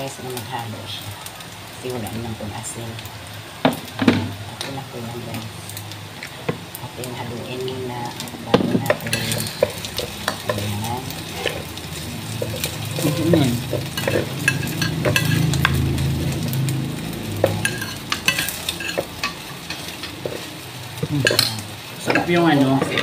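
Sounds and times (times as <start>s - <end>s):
rice sizzling in a pan: 0.0s - 23.0s
spatula scraping a pan: 8.8s - 16.4s, 17.2s - 23.0s.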